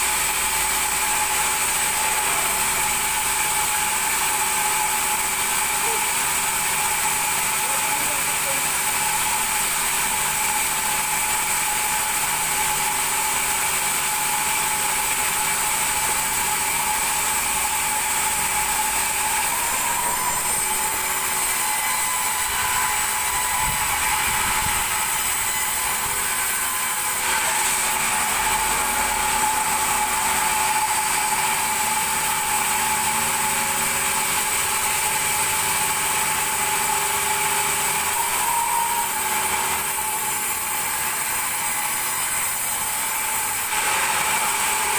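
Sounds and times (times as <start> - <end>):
band saw ripping through log: 10.3 - 35.9, 36.6 - 44.9.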